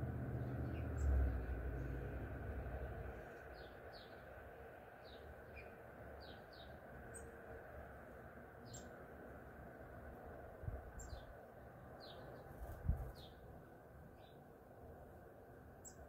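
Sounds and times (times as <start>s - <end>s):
low background rumble: 0.0s - 5.2s
small birds chirping: 0.0s - 7.4s, 8.6s - 9.0s, 10.9s - 13.5s, 14.1s - 14.5s, 15.7s - 16.0s.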